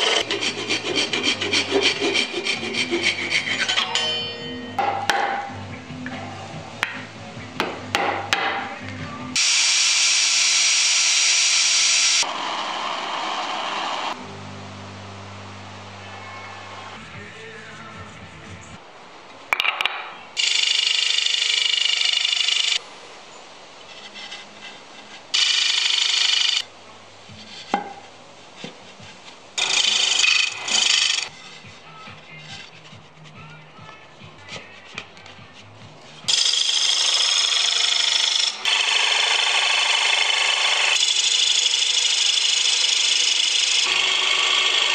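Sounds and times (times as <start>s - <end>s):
drill spinning sanding disc: 0.0s - 3.7s, 9.4s - 14.2s, 20.4s - 22.8s, 23.9s - 26.7s, 29.1s - 33.1s, 36.2s - 44.9s
lathe humming: 0.0s - 3.8s, 9.4s - 14.4s, 24.0s - 26.6s, 28.7s - 33.3s, 36.2s - 44.9s
lathe tool grating on wood: 0.0s - 3.9s, 23.9s - 26.6s, 28.6s - 33.4s, 34.4s - 44.9s.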